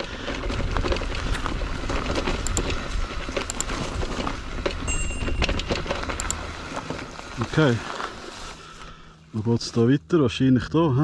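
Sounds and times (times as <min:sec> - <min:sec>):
bike knocking and rattling: 0:00.0 - 0:08.6
tyres rumbling on trail: 0:00.0 - 0:11.0.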